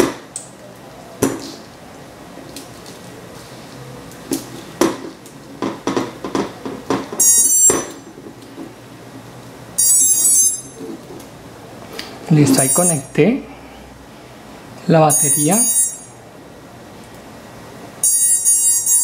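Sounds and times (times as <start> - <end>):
short high-pitched beeps: 12.5 - 13.1.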